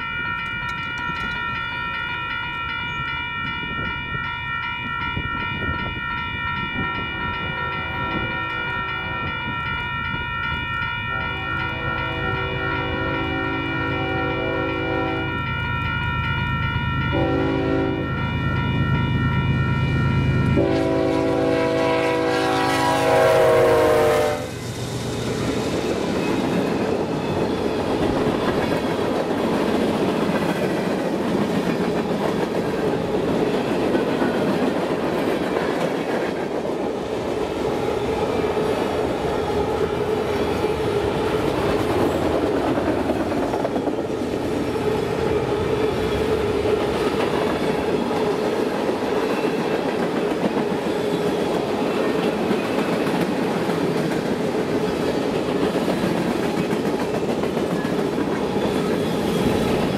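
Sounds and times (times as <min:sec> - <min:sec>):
locomotive horn: 0:11.1 - 0:15.4, 0:17.1 - 0:18.2, 0:20.5 - 0:24.6
freight cars clickety-clack: 0:45.6 - 0:59.9.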